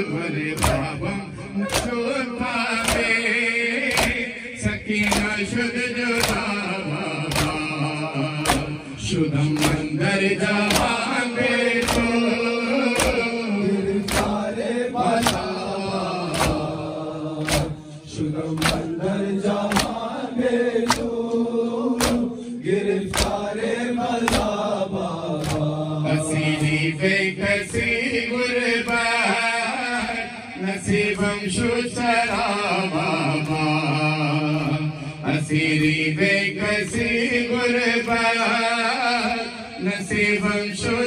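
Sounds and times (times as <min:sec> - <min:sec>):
crowd of men chanting: 0:00.0 - 0:41.0
man singing into a microphone: 0:00.0 - 0:41.0.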